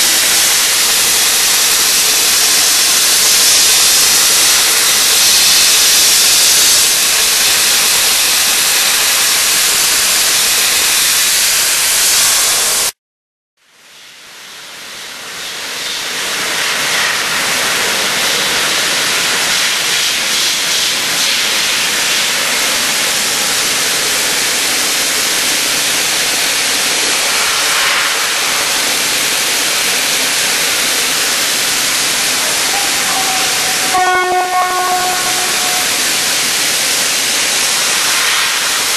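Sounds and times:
dry ice blaster hissing: 0.0s - 12.9s, 22.4s - 38.9s.

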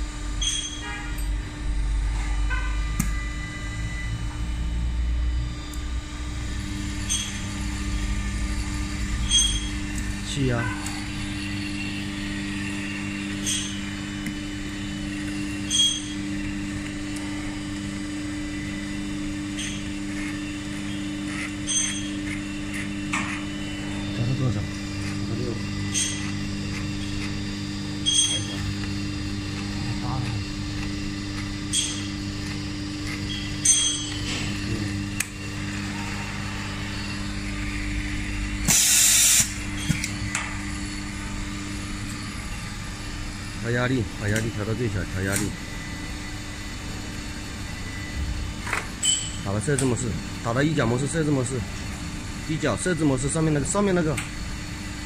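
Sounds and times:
electrical hum of power unit: 0.0s - 55.0s
compressed air hiss: 38.7s - 39.5s.

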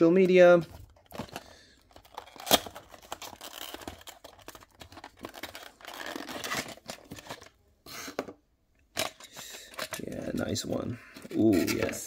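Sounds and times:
plastic crinkling: 0.7s - 7.6s.

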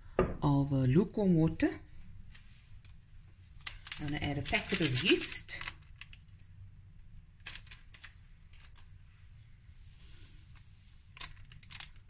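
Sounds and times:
packet crackling: 3.6s - 6.4s, 7.3s - 8.9s.

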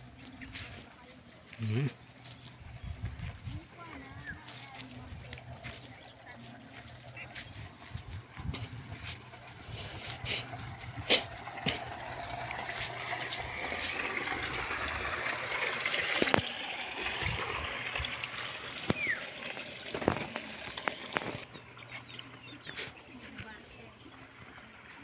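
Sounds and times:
footsteps on muddy bank: 0.0s - 15.5s, 18.0s - 25.0s
water gushing in ditch: 3.1s - 25.0s.

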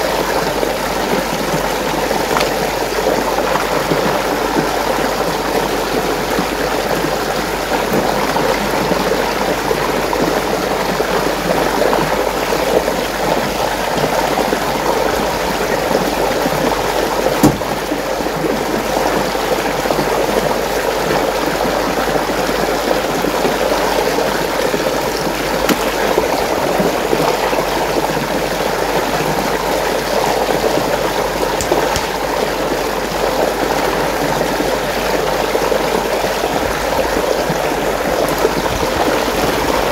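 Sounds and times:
water swirling in whirlpool: 0.0s - 39.9s
sharp knock: 17.4s - 17.8s.

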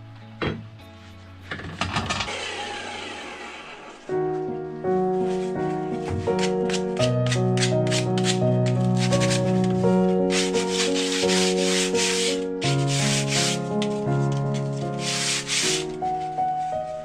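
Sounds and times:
sanding sponge on wood: 6.3s - 9.7s, 10.3s - 13.7s, 14.8s - 16.3s.

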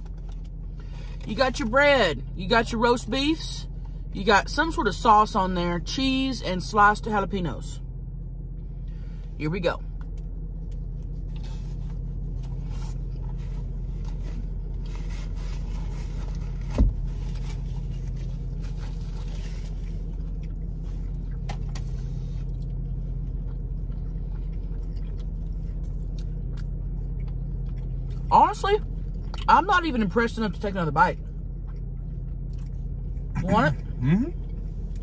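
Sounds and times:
car engine hum: 0.0s - 35.0s
sandwich wrappers rustling: 11.1s - 23.0s
dull thump: 16.7s - 17.0s
quiet chewing: 17.2s - 29.5s, 31.2s - 33.4s.

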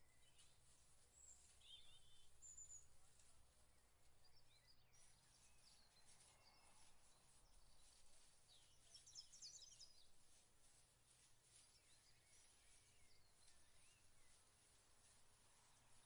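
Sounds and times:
distant small birds chirping: 0.0s - 16.0s.

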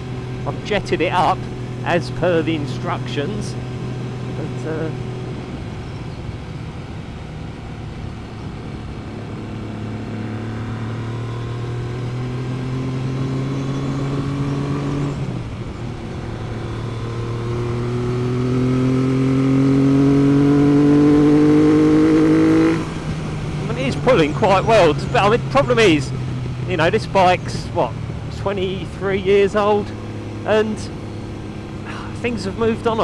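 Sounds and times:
motorcycle engine revving: 0.0s - 33.0s.

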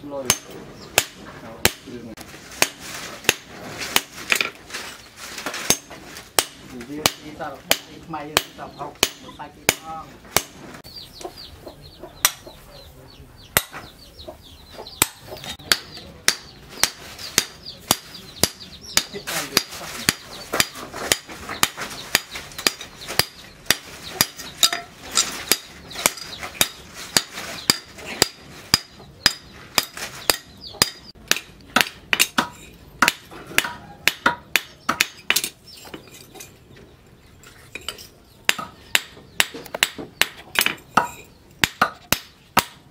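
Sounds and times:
hammer striking metal on anvil: 0.2s - 1.9s.

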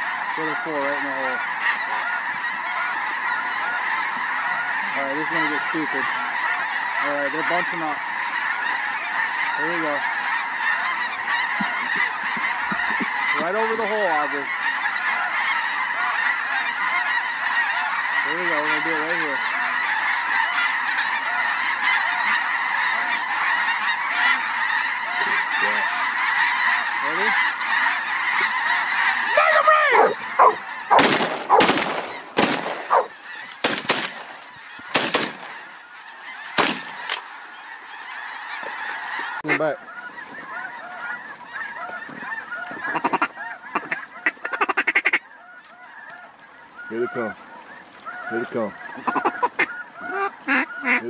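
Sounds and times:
geese honking: 0.0s - 51.0s.

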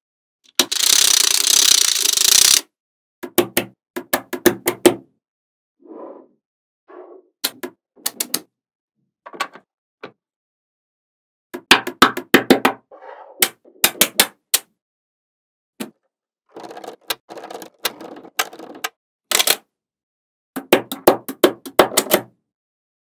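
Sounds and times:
magnetic balls clicking: 0.6s - 2.6s.

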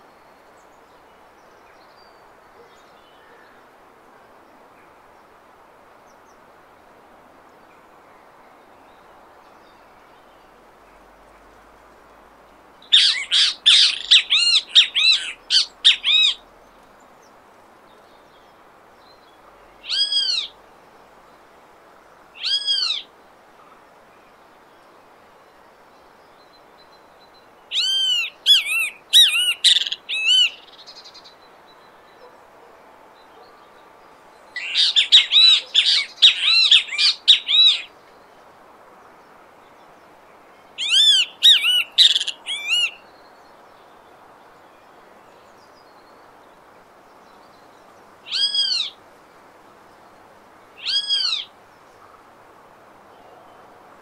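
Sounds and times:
bird calling loud arched notes: 12.9s - 16.4s, 19.8s - 20.6s, 22.4s - 23.1s, 27.7s - 30.8s, 34.6s - 37.9s, 40.8s - 43.0s, 48.3s - 49.0s, 50.8s - 51.5s.

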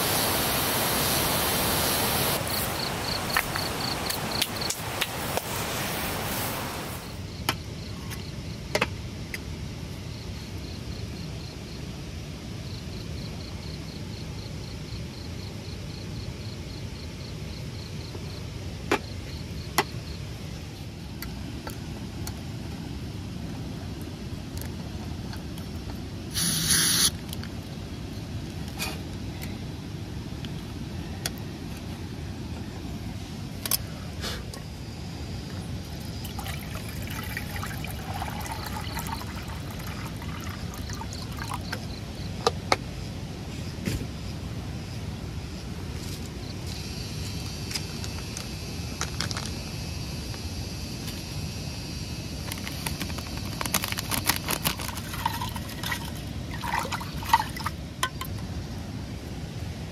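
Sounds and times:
steady low background noise: 0.0s - 26.3s, 27.1s - 59.9s
insects chirping: 0.0s - 28.6s, 29.3s - 59.6s
brief hiss: 26.3s - 27.2s.

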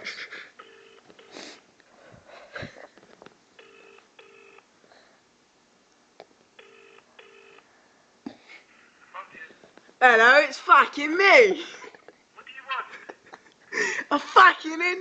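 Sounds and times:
telephone ringback tone: 0.6s - 1.4s, 3.6s - 4.6s, 6.6s - 7.7s.

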